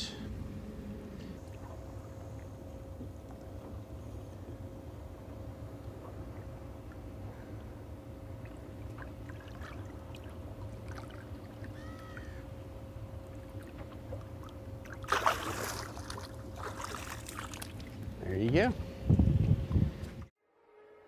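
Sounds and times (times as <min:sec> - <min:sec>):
steady low hum: 0:00.0 - 0:20.4
fish splashing in water: 0:08.8 - 0:12.4, 0:14.8 - 0:18.0.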